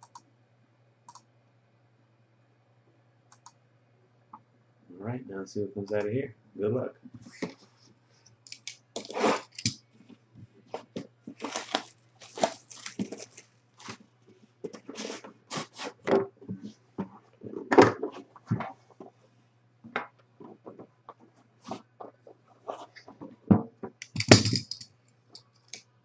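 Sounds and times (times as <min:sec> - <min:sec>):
faint low hum: 0:00.0 - 0:26.0
plastic wrap tearing and crinkling: 0:09.0 - 0:09.7, 0:11.4 - 0:14.0, 0:14.9 - 0:16.0.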